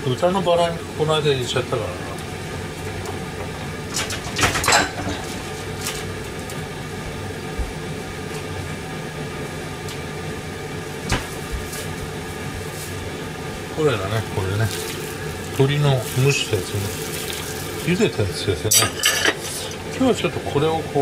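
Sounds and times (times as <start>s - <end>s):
steady mechanical hum: 0.0s - 21.0s
cookware clinking: 4.5s - 5.3s, 18.7s - 19.5s.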